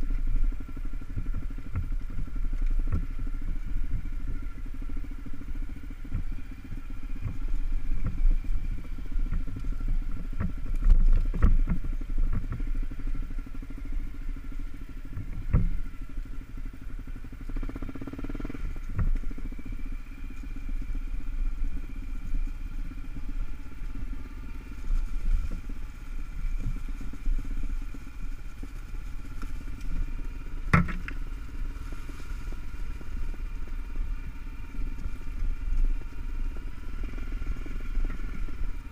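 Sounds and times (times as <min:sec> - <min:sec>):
motorcycle engine running: 0:00.0 - 0:38.9
sharp knocks over rough ground: 0:30.5 - 0:31.4.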